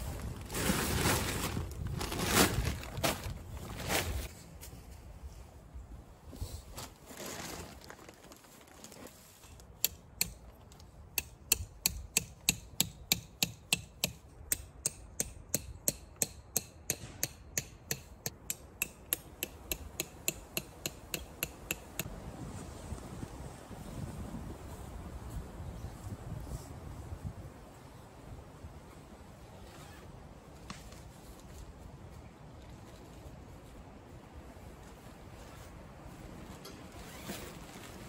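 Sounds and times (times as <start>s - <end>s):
hammer striking tent stake: 11.2s - 22.1s.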